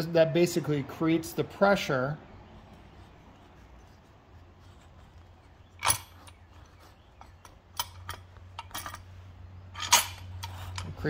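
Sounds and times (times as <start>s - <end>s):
metal parts clicking: 5.1s - 11.0s.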